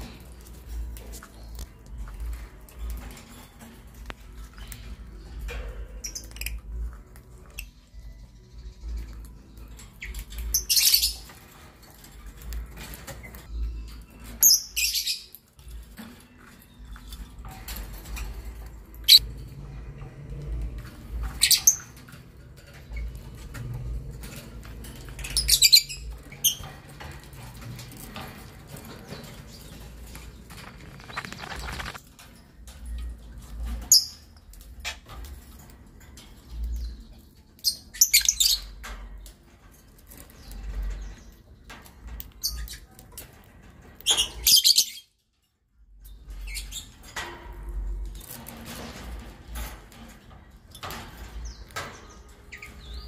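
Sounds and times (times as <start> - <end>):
lovebirds chirping: 0.0 - 19.5, 20.7 - 32.0.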